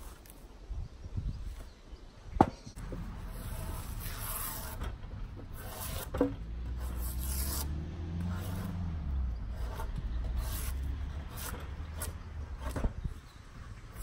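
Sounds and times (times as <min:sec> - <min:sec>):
draw knife scraping bark: 0:03.2 - 0:13.0.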